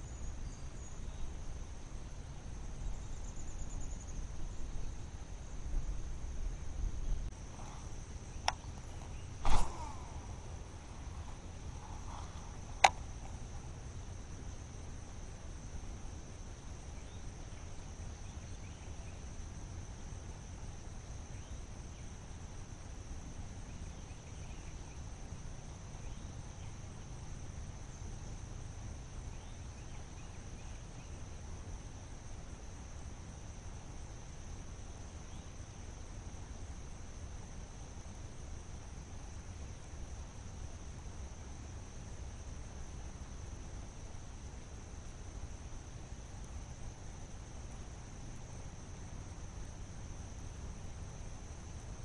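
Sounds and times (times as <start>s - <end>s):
insects droning: 0.0s - 52.0s
low rumble: 6.9s - 13.7s.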